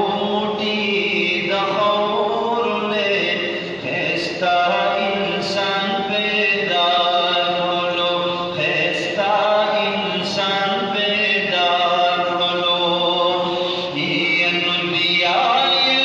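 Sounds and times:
man singing unaccompanied: 0:00.0 - 0:16.0.

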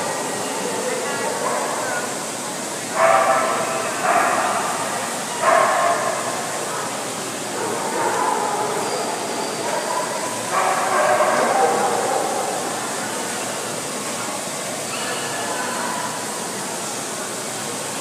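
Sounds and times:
crowd chatter: 0:00.0 - 0:18.0
dogs barking: 0:02.9 - 0:06.5, 0:07.5 - 0:12.8.

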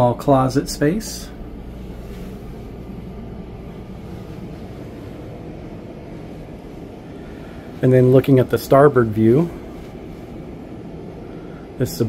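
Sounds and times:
air conditioning hum: 0:00.0 - 0:12.0.

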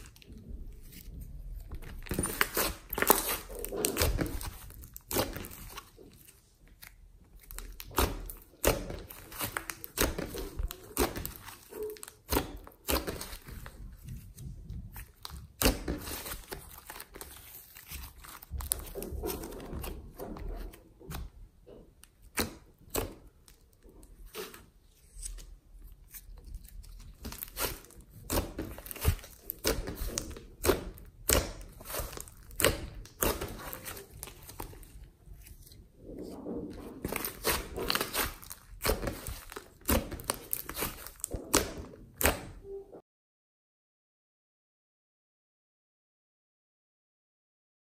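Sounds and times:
slime popping and crackling: 0:01.6 - 0:21.2, 0:22.0 - 0:24.6, 0:26.1 - 0:35.7, 0:36.8 - 0:42.6.

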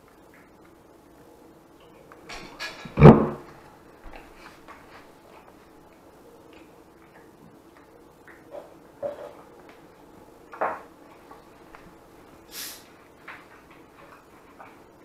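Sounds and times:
cat eating from a plate: 0:04.2 - 0:15.0.

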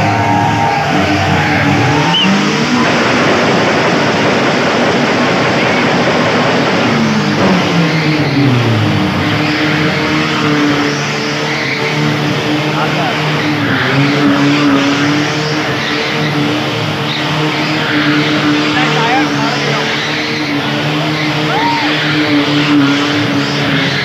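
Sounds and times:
dense rushing noise: 0:00.0 - 0:17.1
small engine revving: 0:00.0 - 0:24.0.

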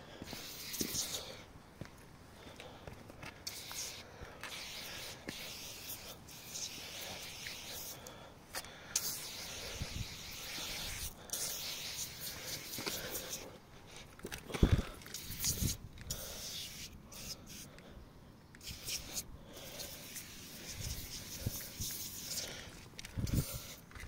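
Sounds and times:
cleaning foam spraying: 0:03.5 - 0:08.0, 0:09.0 - 0:13.4, 0:18.6 - 0:22.6.

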